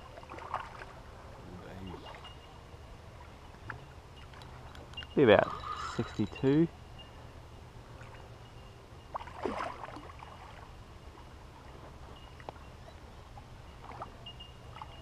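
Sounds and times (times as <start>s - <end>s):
low steady rumble: 0.0s - 15.0s
fish splashing in water: 0.1s - 1.0s, 9.1s - 10.7s.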